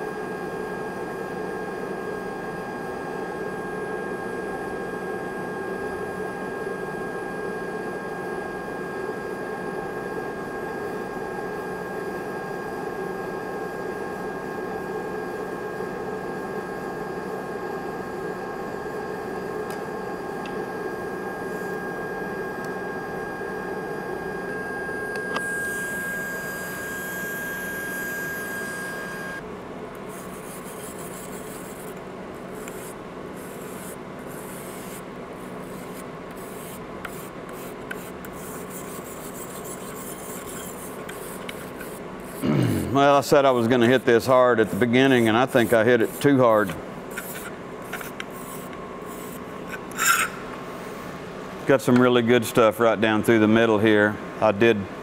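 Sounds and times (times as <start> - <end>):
thin high whine: 8.5 - 29.4, 30.0 - 54.0.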